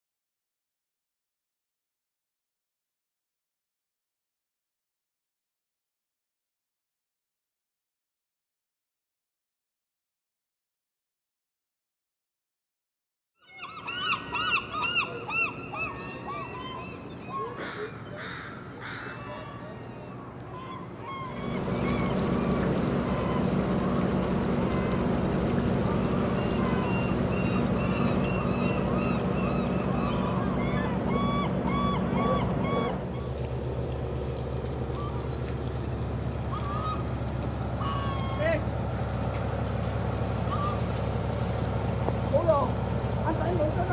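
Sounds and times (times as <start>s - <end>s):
bird squawks: 13.4s - 33.4s, 34.2s - 38.7s, 40.3s - 41.6s
gull calling: 13.4s - 43.9s
low engine hum: 14.2s - 43.9s
low drone: 20.5s - 43.9s.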